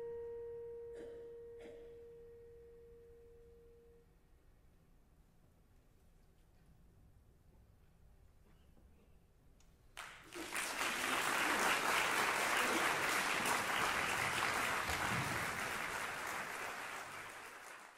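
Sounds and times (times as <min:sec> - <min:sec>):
audience applause: 0:10.0 - 0:17.9.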